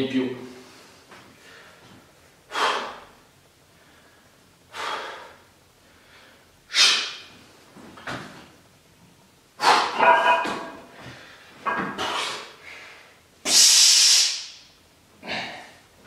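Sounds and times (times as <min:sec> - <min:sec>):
man breathing sharply: 0:00.6 - 0:07.3, 0:10.8 - 0:13.2
man grunting: 0:15.2 - 0:15.8.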